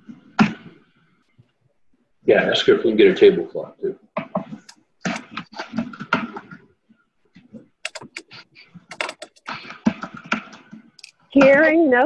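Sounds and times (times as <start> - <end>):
computer keyboard typing: 7.8 - 11.6.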